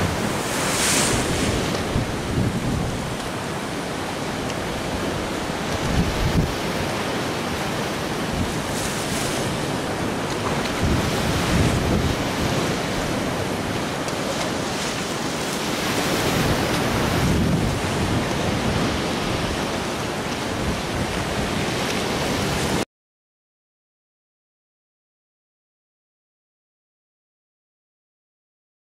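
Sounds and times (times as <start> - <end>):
wind buffeting microphone: 0.0 - 22.8.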